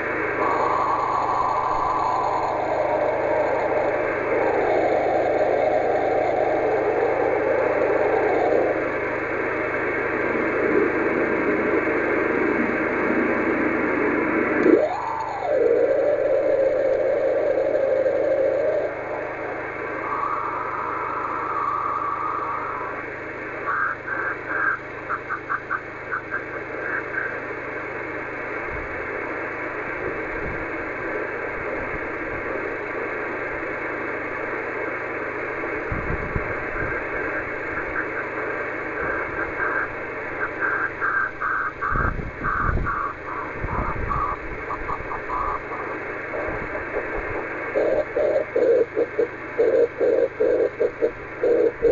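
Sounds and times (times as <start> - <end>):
radio beacon tone: 0.0 - 9.5, 14.5 - 27.9, 35.8 - 51.9
receiver noise hiss: 0.0 - 51.9
morse code pulses: 23.6 - 27.6, 36.5 - 51.9.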